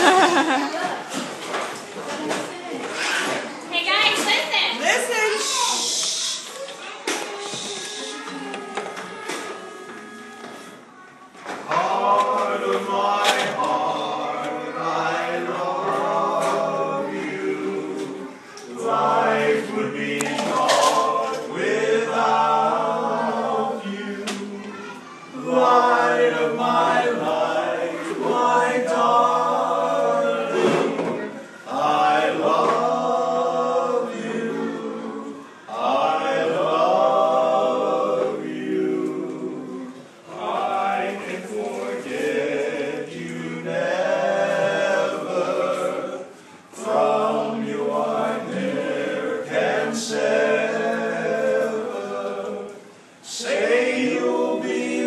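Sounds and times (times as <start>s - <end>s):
barbershop quartet singing: 11.6s - 55.0s.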